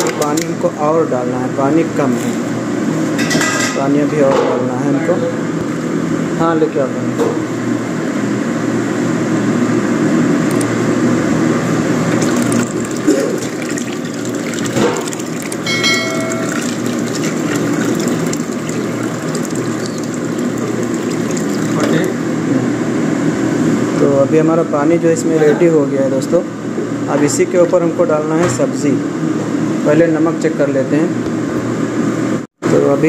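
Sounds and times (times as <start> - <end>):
water pouring into a pot: 11.9 - 22.3.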